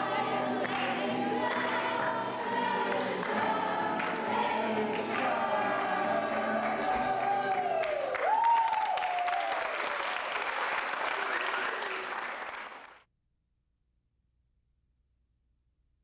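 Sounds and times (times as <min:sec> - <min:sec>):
choir singing: 0:00.0 - 0:08.1
audience applause: 0:00.0 - 0:13.0.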